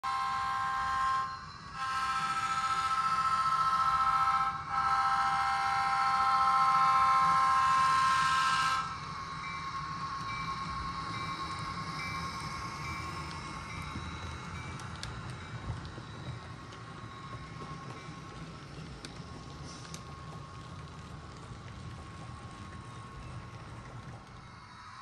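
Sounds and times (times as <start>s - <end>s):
model train diesel horn: 0.0s - 9.0s
model train rolling on track: 0.0s - 25.0s.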